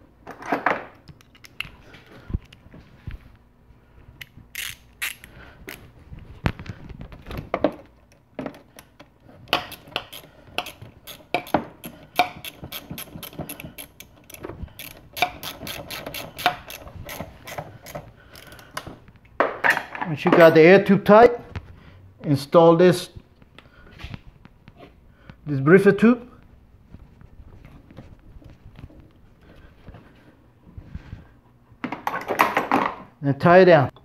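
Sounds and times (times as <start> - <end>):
ratcheting wrench clicking: 4.5 - 5.3, 9.5 - 18.8.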